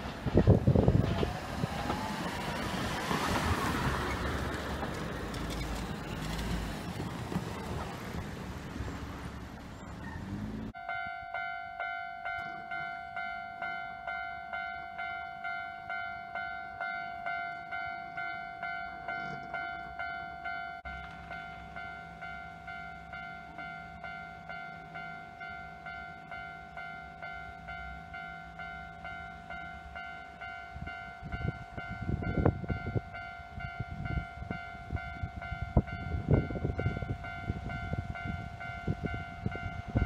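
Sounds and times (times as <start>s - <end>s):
train rushing: 0.0s - 10.8s
level-crossing warning bell: 10.7s - 40.0s.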